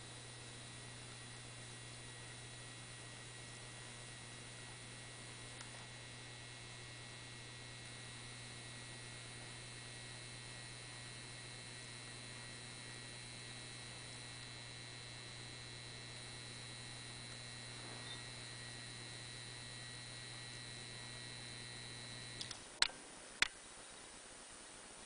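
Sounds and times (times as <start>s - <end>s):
lamp ballast humming: 0.0s - 23.6s
faint high buzz: 0.0s - 25.0s
sharp clicks: 22.3s - 23.6s.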